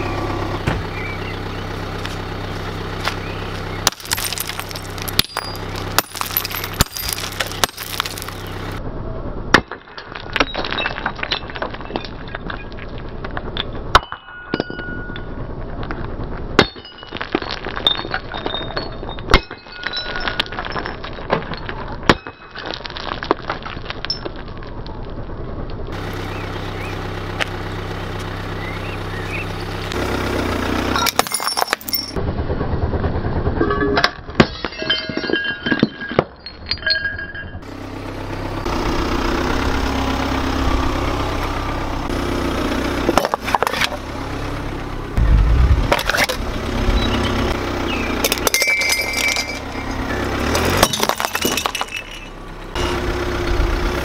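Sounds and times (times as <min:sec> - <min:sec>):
car rolling on asphalt: 0:00.0 - 0:08.9, 0:19.9 - 0:34.3, 0:37.6 - 0:54.0
hatchet striking glass bottles: 0:03.8 - 0:08.5, 0:14.0 - 0:15.2, 0:16.6 - 0:22.7, 0:31.0 - 0:32.2, 0:33.9 - 0:37.6, 0:48.2 - 0:52.4
glass shards clinking: 0:03.8 - 0:08.8, 0:16.6 - 0:23.1, 0:31.0 - 0:32.2, 0:33.6 - 0:37.6, 0:47.0 - 0:52.7
glass shattering: 0:03.8 - 0:08.8, 0:09.7 - 0:12.9, 0:16.6 - 0:24.4, 0:31.0 - 0:32.2, 0:33.6 - 0:37.7, 0:45.9 - 0:52.8.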